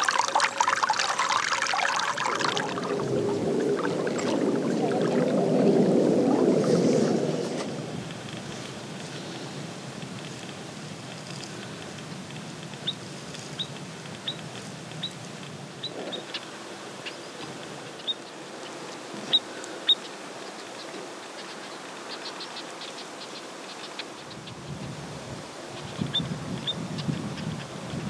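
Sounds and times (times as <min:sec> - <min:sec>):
steady outdoor rushing noise: 0:00.7 - 0:12.0.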